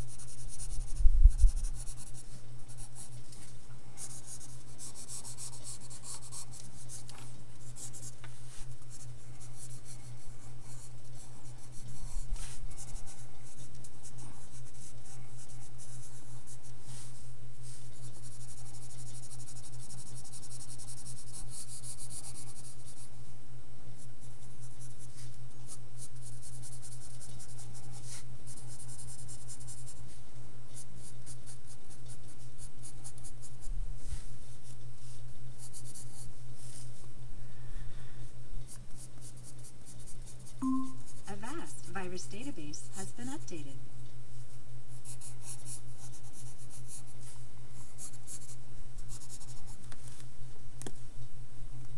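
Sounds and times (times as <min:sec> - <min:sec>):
pencil scratching on paper: 0:00.0 - 0:03.3, 0:04.0 - 0:23.1, 0:24.0 - 0:30.1, 0:30.8 - 0:34.2, 0:35.6 - 0:36.9, 0:38.7 - 0:42.0, 0:44.9 - 0:49.8
steady low hum: 0:00.0 - 0:51.9.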